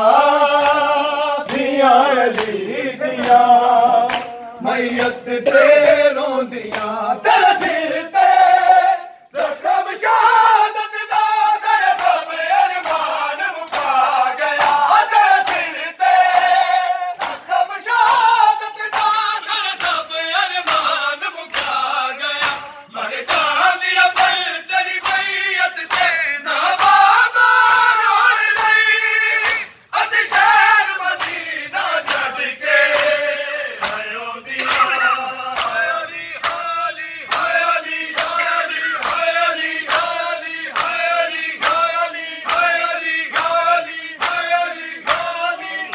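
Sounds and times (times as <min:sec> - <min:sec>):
group chanting a lament: 0:00.0 - 0:45.9
chest-beating slaps: 0:00.6 - 0:02.6, 0:03.2 - 0:06.1, 0:16.3 - 0:17.5, 0:31.2 - 0:45.9.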